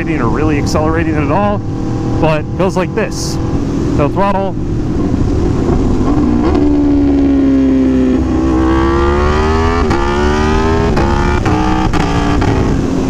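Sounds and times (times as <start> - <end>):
motorcycle engine on the overrun: 0.0 - 13.0
throttle blips on downshifts: 0.0 - 13.0
wind rush: 0.0 - 13.0.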